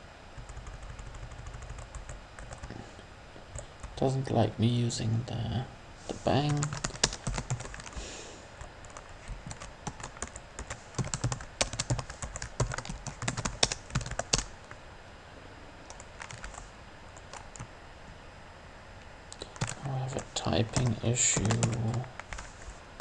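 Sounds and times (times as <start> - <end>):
typing on computer keyboard: 0.4 - 2.7, 6.5 - 8.0, 8.8 - 14.5, 15.9 - 16.6, 19.3 - 19.9, 20.6 - 22.5.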